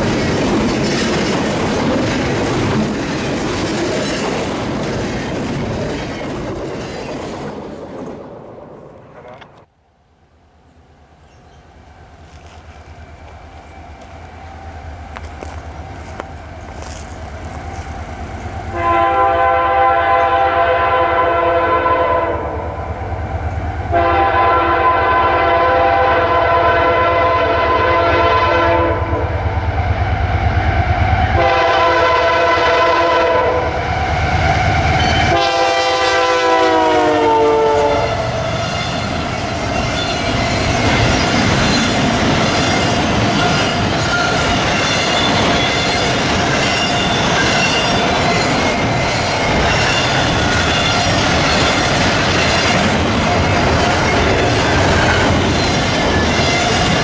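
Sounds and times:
train wheels clacking over rail joints: 0.0s - 8.2s, 39.2s - 57.0s
locomotive air horn blasts: 18.7s - 22.8s, 23.9s - 29.4s, 31.3s - 33.8s, 35.0s - 39.2s.

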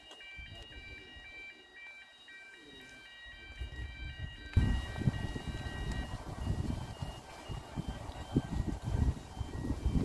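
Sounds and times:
faint high beeping tones: 0.0s - 10.0s
wind buffeting microphone: 3.5s - 10.0s.

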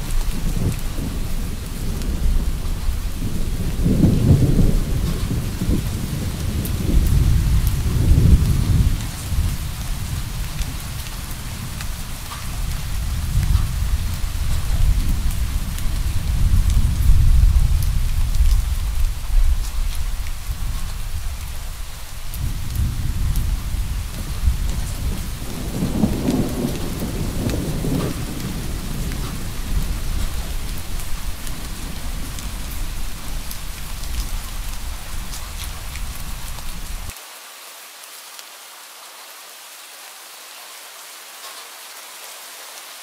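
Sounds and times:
distant thunder rumbling: 0.0s - 37.1s
steady rain: 0.0s - 43.0s.

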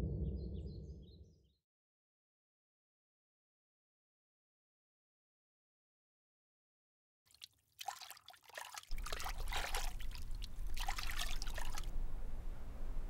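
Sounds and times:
shower water splashing: 7.3s - 11.9s.

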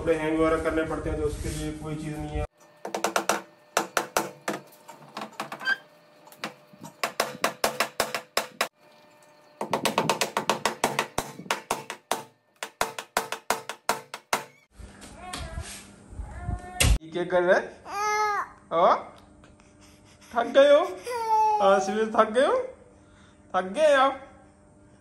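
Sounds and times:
hammer tapping nails into wood: 2.9s - 4.6s, 7.0s - 8.7s, 9.6s - 14.5s.

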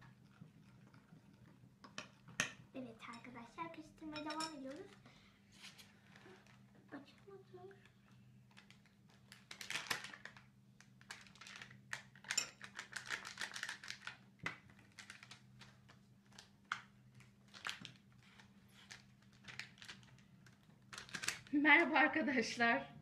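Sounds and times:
packet being torn open: 8.5s - 14.2s, 14.8s - 15.7s, 16.3s - 21.5s.

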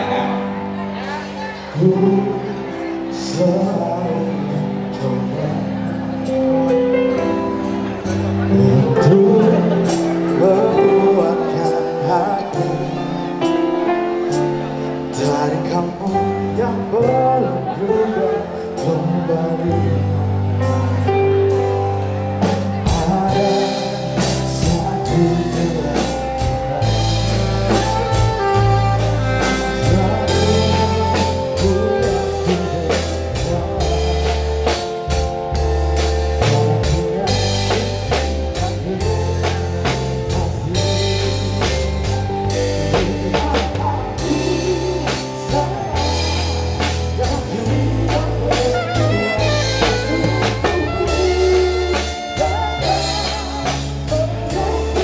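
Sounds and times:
bass notes: 0.0s - 55.0s
electric guitar: 0.0s - 55.0s
drum kit with cymbals: 22.4s - 55.0s
saxophone melody: 23.9s - 46.4s, 47.2s - 55.0s.

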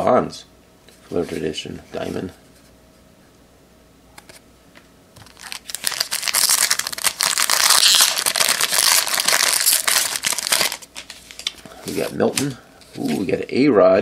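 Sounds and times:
foil wrapper crinkling: 5.2s - 13.3s.

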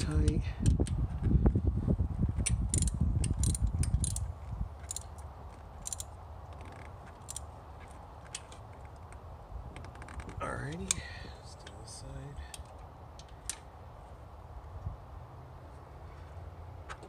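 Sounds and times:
socket ratchet clicking: 2.4s - 5.2s, 5.8s - 7.5s.

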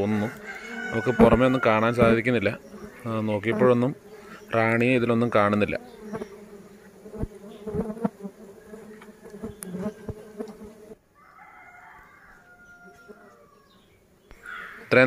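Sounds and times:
bees buzzing: 0.0s - 11.0s, 12.0s - 15.0s.

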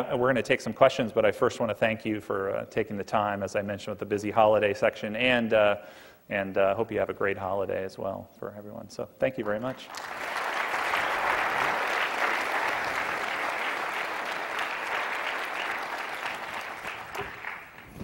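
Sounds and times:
audience applauding: 9.5s - 18.0s.

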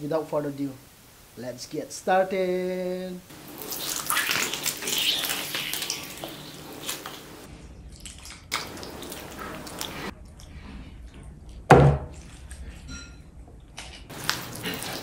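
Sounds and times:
gravy pouring and splashing: 3.3s - 10.1s, 14.1s - 15.0s
dull knock: 11.7s - 12.1s.

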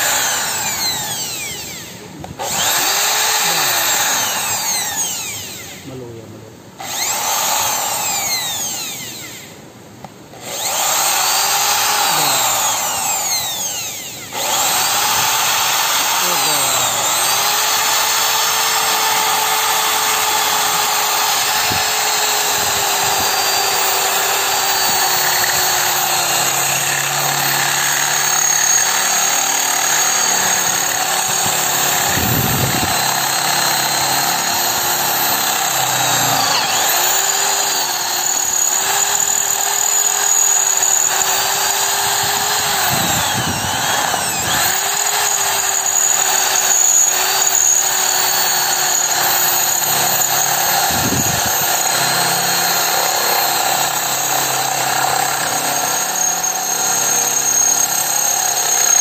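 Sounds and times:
electric drill cutting steel pipe: 0.0s - 6.1s, 6.8s - 9.6s, 10.3s - 59.0s.

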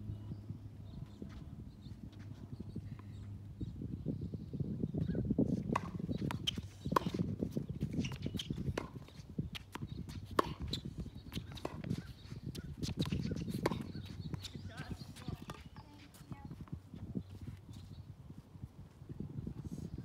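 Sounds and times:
footsteps and shoe scuffs on court: 1.0s - 3.4s, 5.4s - 20.0s
racket striking tennis ball: 5.6s - 15.8s
ball bouncing: 8.0s - 12.0s, 12.8s - 16.1s.

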